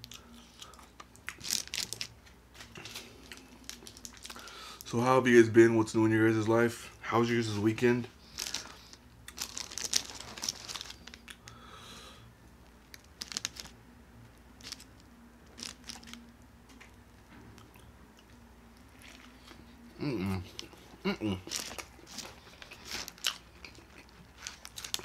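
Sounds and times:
crunching food: 0:00.0 - 0:04.9, 0:08.2 - 0:11.7, 0:12.6 - 0:13.8, 0:14.6 - 0:25.0
paper wrapper crinkling: 0:01.3 - 0:04.6, 0:07.5 - 0:11.6, 0:12.8 - 0:13.8, 0:14.6 - 0:16.2, 0:21.4 - 0:25.0
wet chewing: 0:20.4 - 0:25.0.

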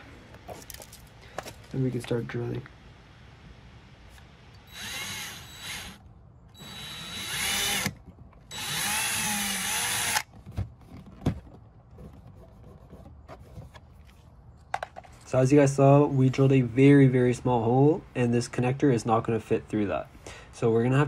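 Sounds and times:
cordless drill motor whine: 0:04.6 - 0:06.0, 0:06.6 - 0:10.3.

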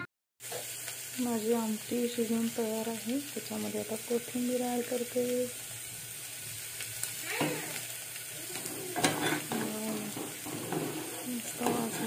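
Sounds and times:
curry sizzling: 0:00.4 - 0:12.0
spoon scraping a steel pot: 0:08.6 - 0:12.0.

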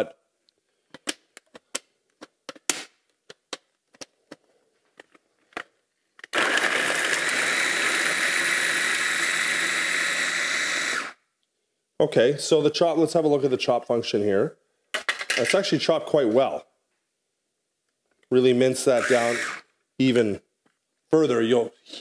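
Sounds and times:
food chopper chopping carrots: 0:06.3 - 0:11.2, 0:19.0 - 0:19.6.

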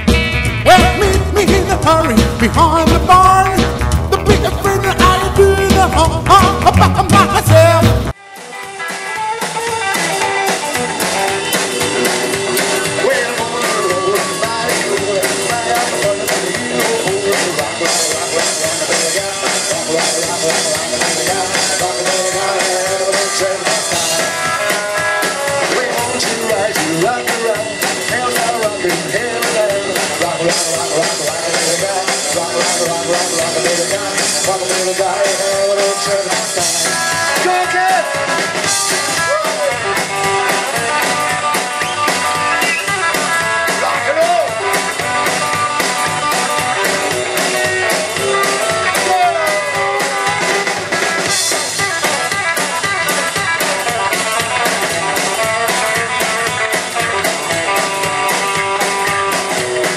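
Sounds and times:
upright double bass: 0:00.0 - 0:08.2
drum kit: 0:00.0 - 0:59.9
electric guitar: 0:00.0 - 0:59.9
man singing: 0:00.6 - 0:08.2, 0:11.9 - 0:59.9.

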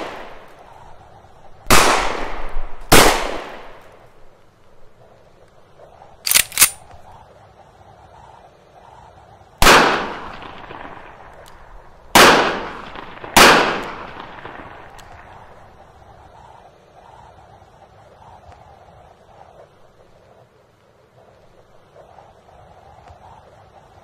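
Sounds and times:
gunshots echoing: 0:06.3 - 0:06.8, 0:12.1 - 0:14.9.

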